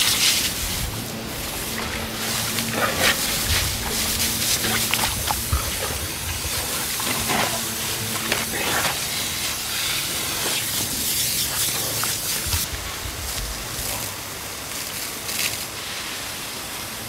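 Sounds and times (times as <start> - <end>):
hose water spraying: 0.0 - 17.0.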